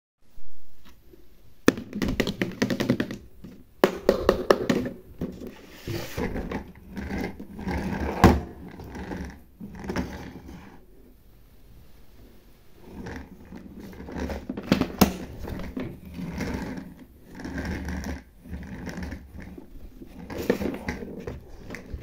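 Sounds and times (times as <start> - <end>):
plastic rustling and scraping: 4.6 - 10.9, 12.8 - 22.0.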